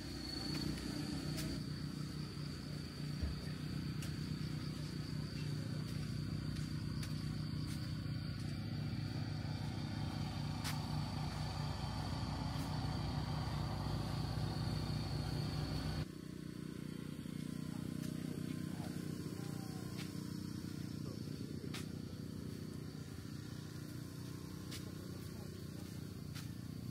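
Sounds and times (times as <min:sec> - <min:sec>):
low mechanical hum: 0:00.0 - 0:26.9.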